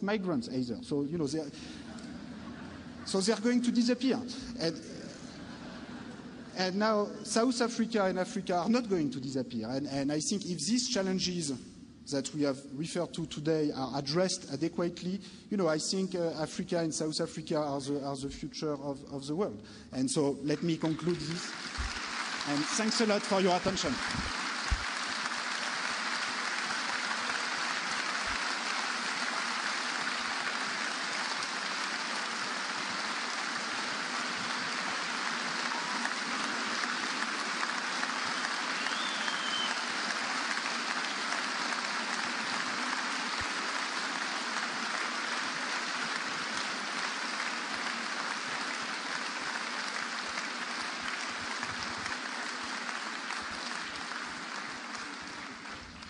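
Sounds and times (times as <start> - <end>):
audience applauding: 20.5 - 56.0.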